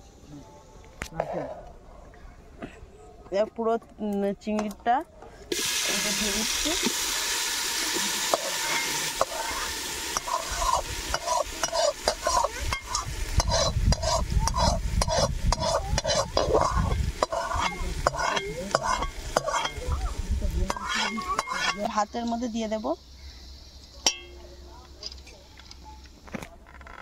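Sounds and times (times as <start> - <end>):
food sizzling in hot ghee: 5.5 - 24.4
spatula scraping a metal pot: 8.0 - 22.4.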